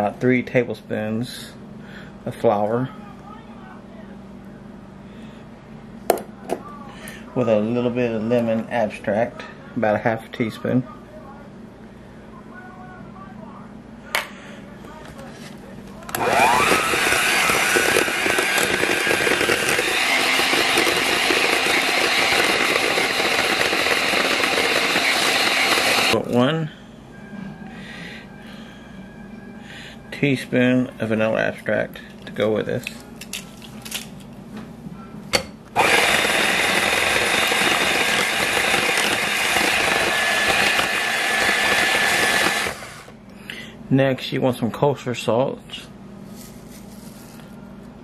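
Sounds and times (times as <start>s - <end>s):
electric hand mixer whirring: 16.1s - 26.3s, 35.7s - 43.2s.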